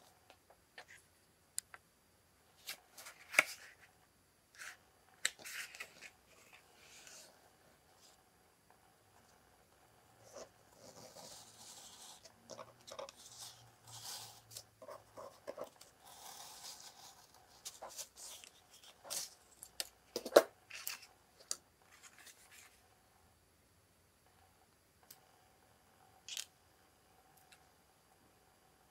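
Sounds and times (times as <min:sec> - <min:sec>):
blade scratching paper: 0:10.4 - 0:14.6.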